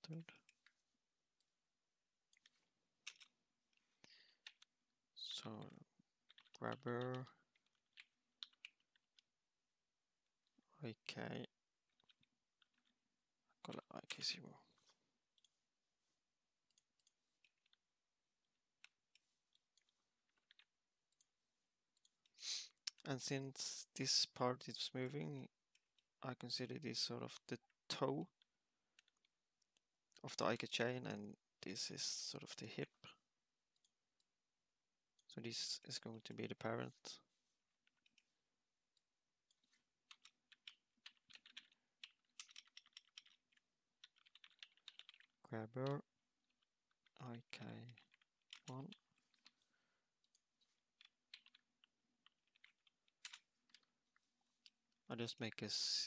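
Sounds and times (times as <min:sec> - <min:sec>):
faint keyboard typing: 0:02.3 - 0:09.3, 0:10.4 - 0:13.0, 0:13.6 - 0:34.3, 0:35.1 - 0:56.0
computer mouse clicks: 0:39.5 - 0:47.2, 0:47.8 - 0:53.9.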